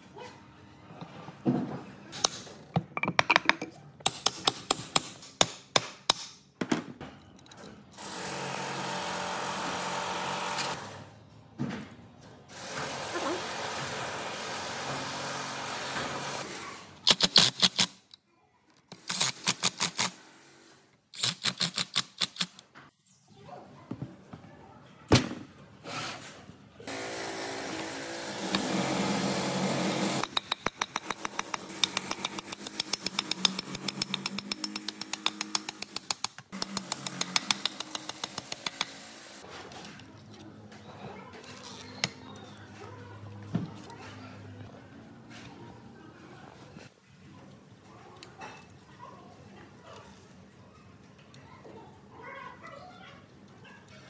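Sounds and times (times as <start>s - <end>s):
power tool running: 26.9s - 30.4s.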